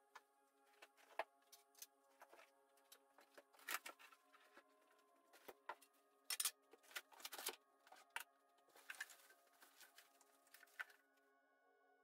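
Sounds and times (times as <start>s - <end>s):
plastic wrap crinkling: 6.8s - 11.1s.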